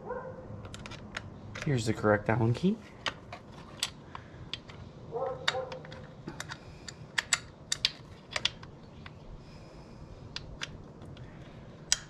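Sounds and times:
chain guard clicks and taps: 0:03.0 - 0:09.2.

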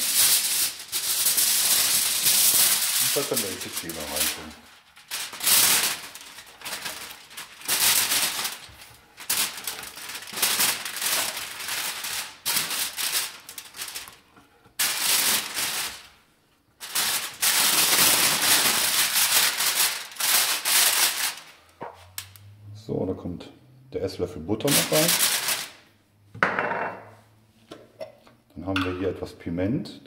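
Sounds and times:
aluminium foil crinkling: 0:00.0 - 0:16.2, 0:16.8 - 0:22.4, 0:24.6 - 0:25.9.

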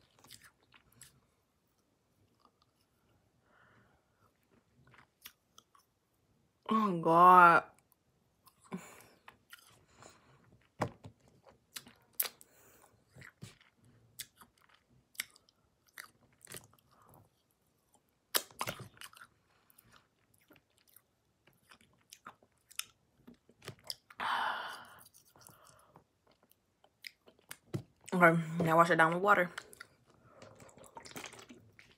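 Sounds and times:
chewing crunchy candy: 0:00.0 - 0:01.4, 0:04.2 - 0:06.1, 0:07.9 - 0:24.2, 0:24.8 - 0:28.1, 0:29.5 - 0:31.9
breath: 0:03.4 - 0:04.1, 0:24.2 - 0:26.0.

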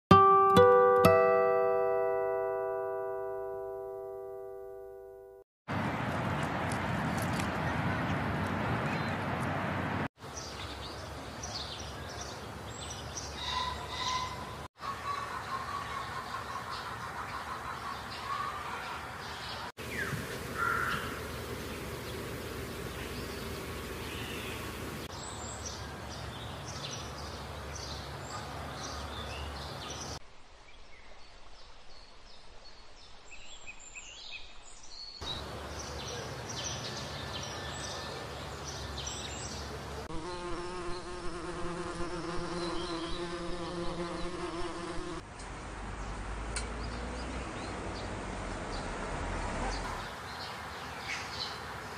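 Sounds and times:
flying insect buzzing: 0:40.1 - 0:45.2.

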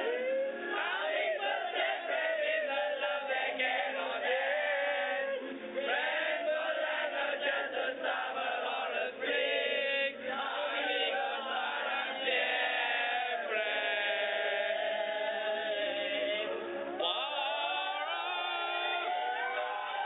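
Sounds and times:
boys reciting aloud together: 0:06.0 - 0:16.4.

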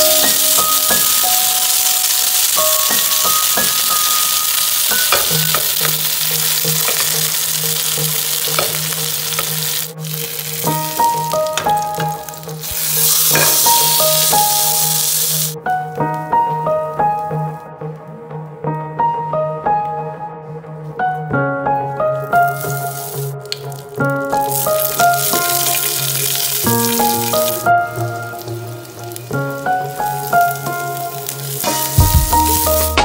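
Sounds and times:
fish sizzling in oil: 0:00.0 - 0:15.6, 0:22.4 - 0:33.0
background piano music: 0:00.0 - 0:33.0.

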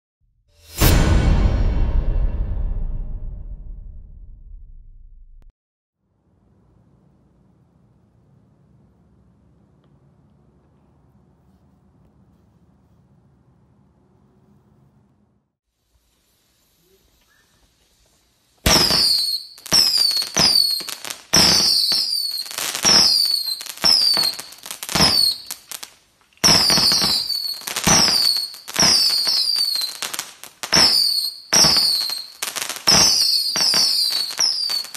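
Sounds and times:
whistling fireworks firing: 0:15.9 - 0:34.9
firework cracks and crackle: 0:18.5 - 0:34.9.

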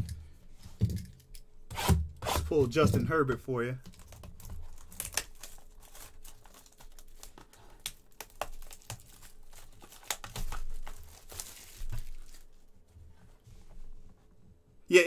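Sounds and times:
card box and wrapping crinkling: 0:03.9 - 0:12.6.

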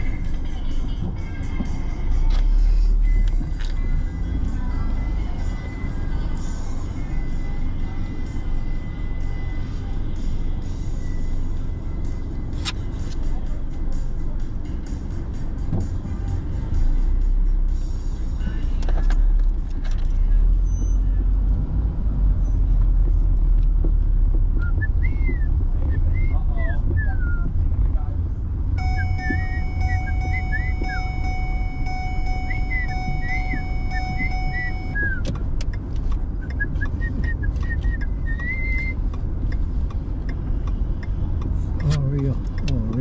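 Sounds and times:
music: 0:00.0 - 0:21.6
car engine and tyres rumble: 0:00.0 - 0:43.0
high chirping notes: 0:28.8 - 0:35.2.

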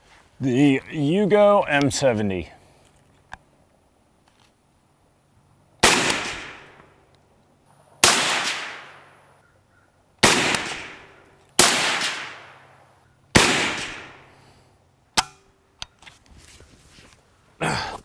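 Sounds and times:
rifle shots with echo: 0:05.8 - 0:06.8, 0:08.0 - 0:09.2, 0:10.2 - 0:14.3.

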